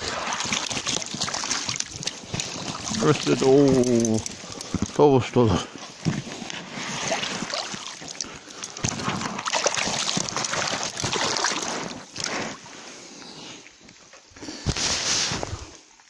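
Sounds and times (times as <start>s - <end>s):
water sloshing and splashing: 0.0s - 12.8s.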